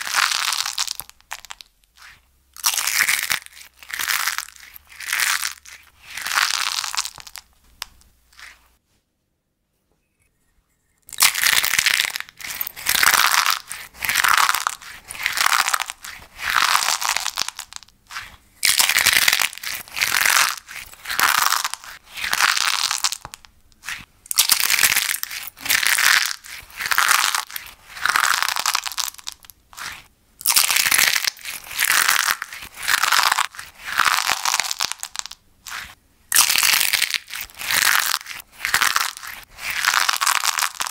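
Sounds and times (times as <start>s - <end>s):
crispy paper cups crunching: 11.1s - 40.9s.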